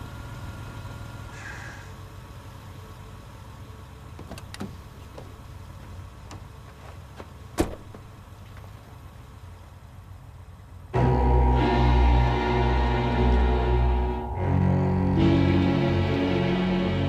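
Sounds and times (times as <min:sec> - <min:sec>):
car engine idling: 0:00.0 - 0:17.0
car door clicks: 0:04.2 - 0:05.4, 0:07.2 - 0:08.1
ominous low-string music: 0:10.9 - 0:17.0.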